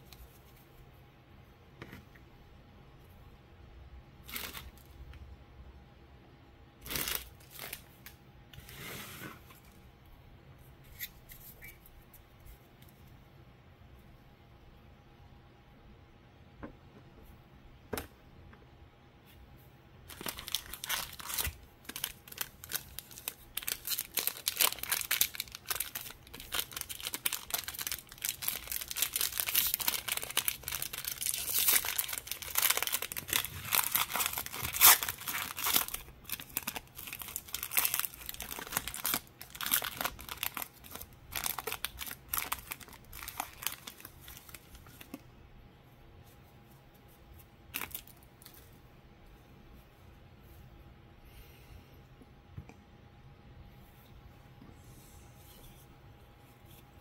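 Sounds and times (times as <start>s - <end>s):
plastic wrapping tearing and crumpling: 4.2s - 4.9s, 6.8s - 8.0s, 20.1s - 45.2s, 47.7s - 48.6s.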